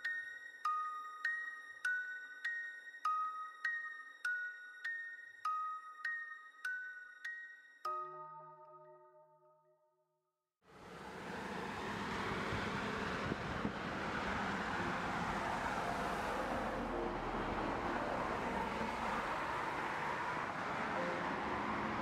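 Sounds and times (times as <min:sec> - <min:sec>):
distant road traffic: 0:10.7 - 0:22.0.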